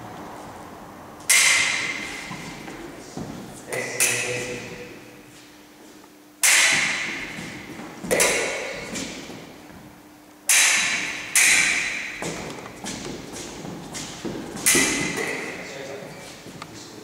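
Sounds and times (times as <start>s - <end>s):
fencing blades clashing: 1.2s - 5.2s, 6.4s - 9.5s, 10.5s - 16.4s.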